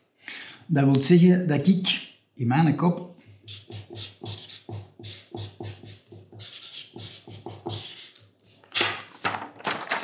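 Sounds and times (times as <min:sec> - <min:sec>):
pen writing on paper: 0:03.6 - 0:08.0.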